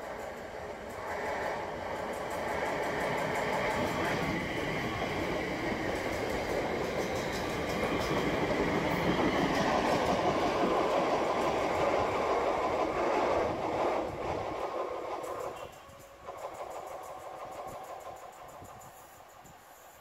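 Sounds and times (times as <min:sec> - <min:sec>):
train wheels clattering on rails: 0:00.0 - 0:20.0.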